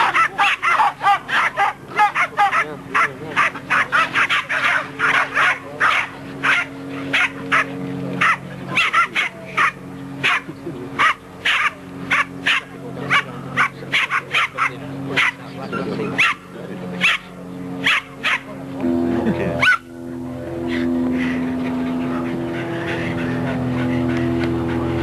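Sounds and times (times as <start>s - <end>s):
dogs barking: 0.0s - 18.6s, 19.6s - 20.0s
steady low hum: 0.0s - 25.0s.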